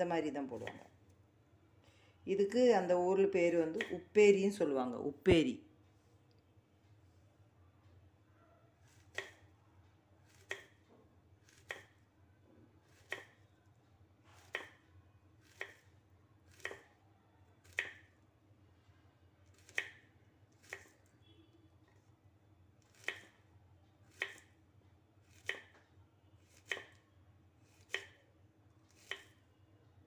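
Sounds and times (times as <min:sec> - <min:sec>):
knife chopping on wooden board: 0:08.9 - 0:09.4, 0:10.3 - 0:10.8, 0:11.4 - 0:12.0, 0:12.8 - 0:13.4, 0:14.4 - 0:14.8, 0:15.4 - 0:15.9, 0:16.5 - 0:17.0, 0:17.6 - 0:18.1, 0:19.5 - 0:21.0, 0:22.8 - 0:23.4, 0:24.1 - 0:24.5, 0:25.2 - 0:25.8, 0:26.5 - 0:27.0, 0:27.6 - 0:28.3, 0:28.9 - 0:29.4.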